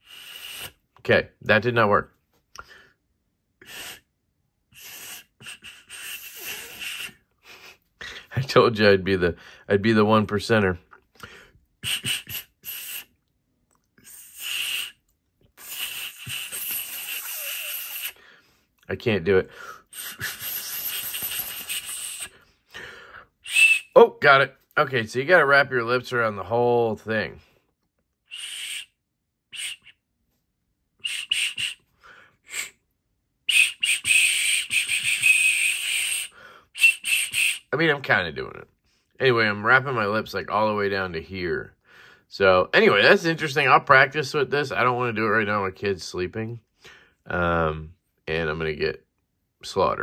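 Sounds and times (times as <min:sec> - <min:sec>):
breathy puffs into whistle: 0:00.0 - 0:00.8, 0:03.6 - 0:04.1, 0:04.7 - 0:08.3, 0:11.2 - 0:13.2, 0:14.0 - 0:15.0, 0:15.6 - 0:18.6, 0:19.5 - 0:24.0, 0:28.3 - 0:30.0, 0:31.0 - 0:32.8, 0:33.5 - 0:37.7
shrill metal whistle toots: 0:23.4 - 0:24.0, 0:28.3 - 0:28.9, 0:29.6 - 0:30.0, 0:31.0 - 0:31.8, 0:33.5 - 0:37.7.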